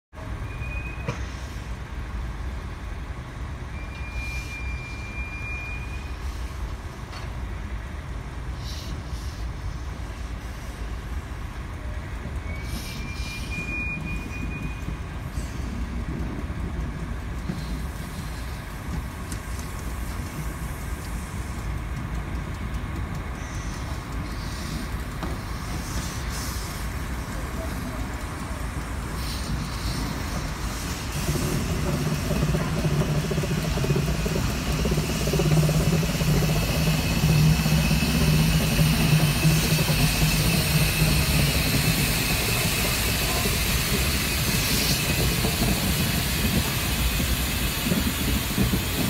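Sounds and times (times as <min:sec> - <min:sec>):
steam train rumbling: 0:00.2 - 0:49.0
high squeals: 0:31.2 - 0:46.1.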